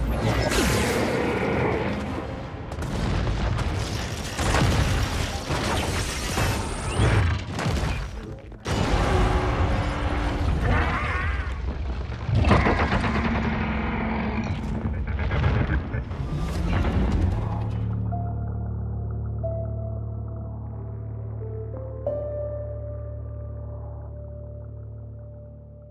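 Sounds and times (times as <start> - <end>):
machinery sounds: 12.3 - 18.1.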